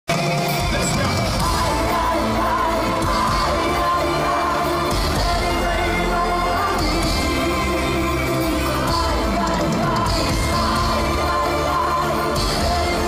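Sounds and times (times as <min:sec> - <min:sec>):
live band playing pop music: 0:00.1 - 0:13.0
person singing: 0:00.4 - 0:13.0.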